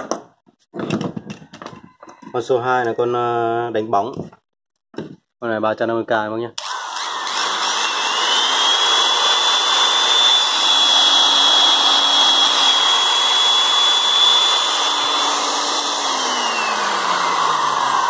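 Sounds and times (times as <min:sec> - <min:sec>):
electric polisher motor whine: 0:06.6 - 0:18.0.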